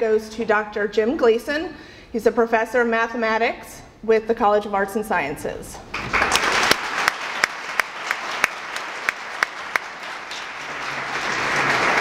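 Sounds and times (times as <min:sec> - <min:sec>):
audience applauding: 0:05.9 - 0:12.0
close individual claps: 0:05.9 - 0:12.0.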